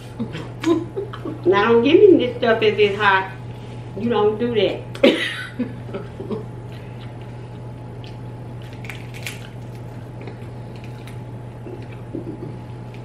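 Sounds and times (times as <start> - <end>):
low hum: 0.0 - 13.0
crab shell cracking: 8.0 - 12.1
wet squishing: 8.0 - 12.1.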